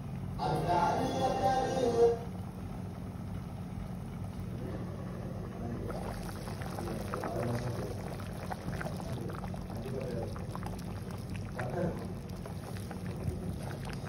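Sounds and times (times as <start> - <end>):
steady low hum: 0.0 - 14.0
stew bubbling and popping: 3.6 - 14.0.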